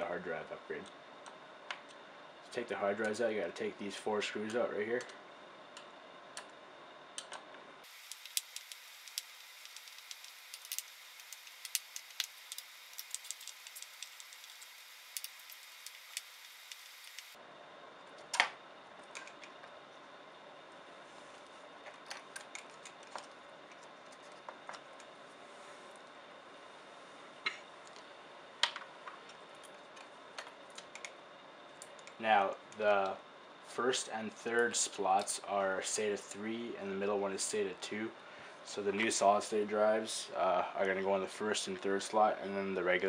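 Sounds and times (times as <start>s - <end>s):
screwdriver clicking on screws: 7.9s - 17.3s.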